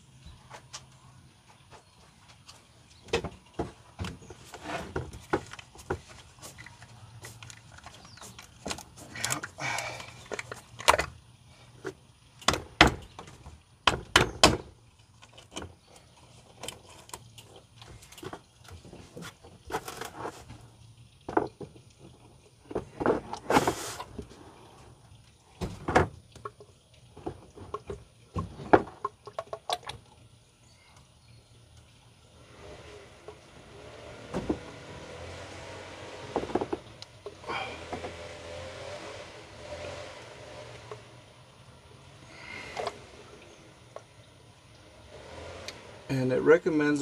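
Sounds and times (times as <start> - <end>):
hollow plastic knocks and rattles: 2.3 - 6.7, 11.8 - 15.8, 21.2 - 24.3, 25.6 - 30.1, 34.3 - 34.8, 36.3 - 38.2
scraping rustle: 4.3 - 9.2, 18.8 - 20.7, 22.8 - 24.6.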